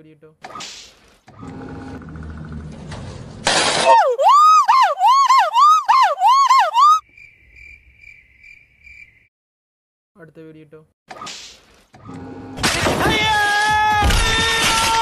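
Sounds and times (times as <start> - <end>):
gibbon whooping: 3.9 - 7.0.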